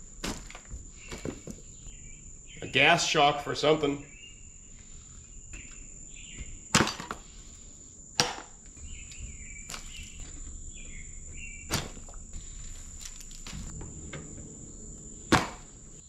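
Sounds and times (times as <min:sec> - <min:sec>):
high-pitched insect trill: 0:00.8 - 0:16.0
sharp knocks and clunks: 0:08.2 - 0:14.5, 0:15.2 - 0:15.8.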